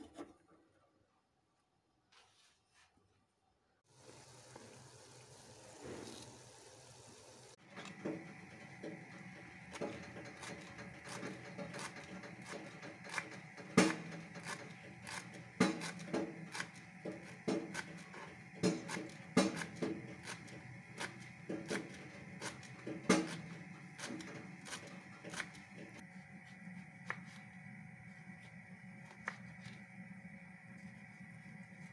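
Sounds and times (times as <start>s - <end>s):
knife chopping on wooden board: 11.1s - 26.0s.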